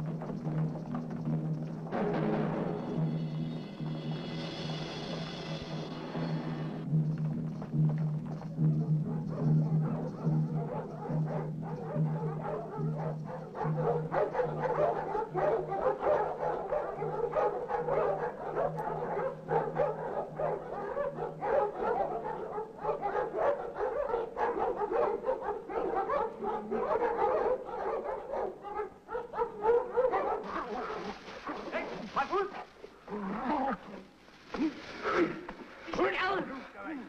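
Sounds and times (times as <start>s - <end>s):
dogs barking and yelping: 8.5s - 33.5s.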